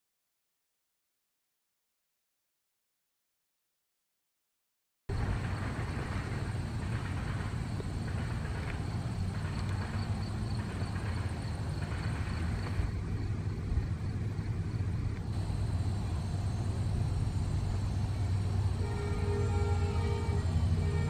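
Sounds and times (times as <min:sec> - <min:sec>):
vehicle engine rumbling: 0:05.1 - 0:21.0.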